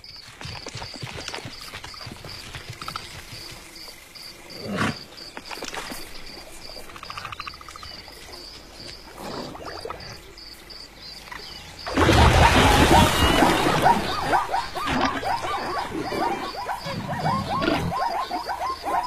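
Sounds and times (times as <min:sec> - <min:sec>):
insect chirping: 0:00.0 - 0:19.0
animal calls: 0:11.8 - 0:19.0.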